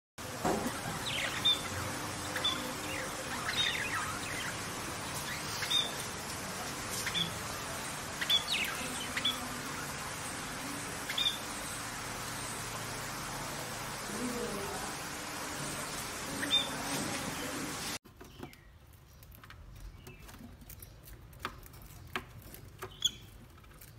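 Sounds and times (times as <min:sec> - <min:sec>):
steady hiss: 0:00.2 - 0:18.0
budgerigars chirping: 0:00.5 - 0:13.4, 0:15.6 - 0:17.9.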